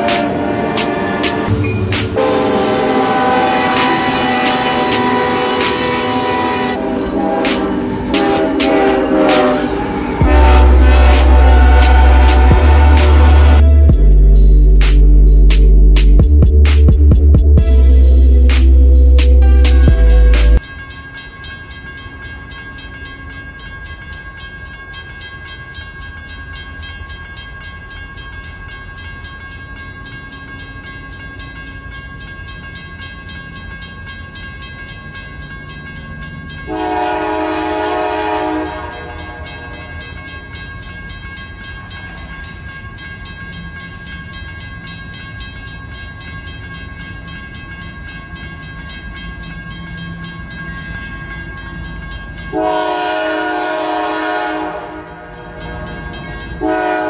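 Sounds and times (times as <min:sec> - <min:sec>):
train horn blast: 0:00.0 - 0:14.1, 0:36.7 - 0:40.0, 0:52.5 - 0:55.7, 0:56.6 - 0:57.0
crossing bell ringing: 0:00.0 - 0:57.0
freight train rumbling: 0:00.0 - 0:57.0.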